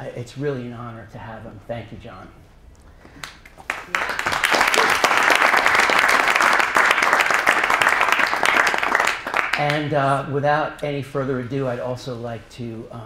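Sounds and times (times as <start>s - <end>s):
audience applauding: 3.2s - 9.8s.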